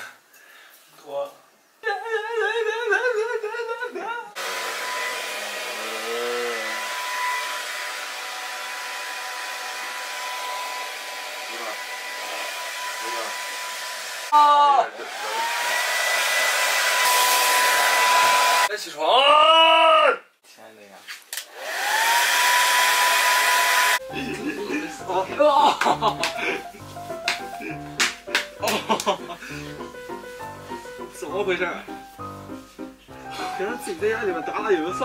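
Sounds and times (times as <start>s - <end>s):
hair dryer running: 4.4s - 18.7s, 21.4s - 26.6s
person humming: 5.8s - 6.8s, 24.0s - 28.0s.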